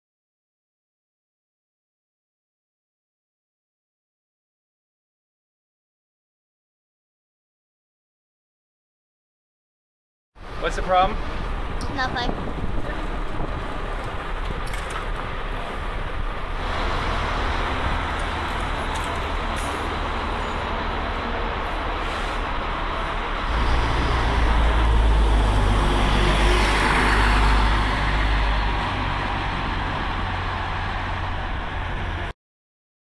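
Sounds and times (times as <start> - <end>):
bus engine rumbling: 10.4 - 32.3
street traffic noise: 10.4 - 32.4.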